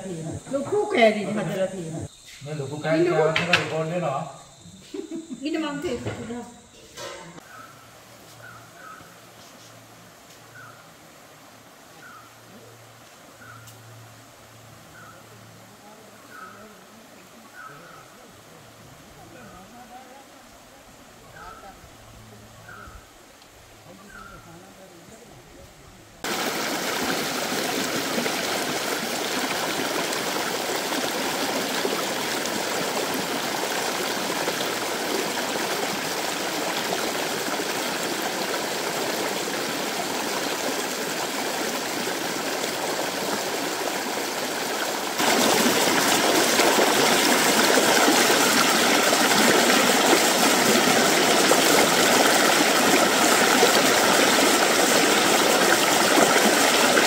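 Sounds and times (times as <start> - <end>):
stream rushing over rocks: 26.2 - 57.0.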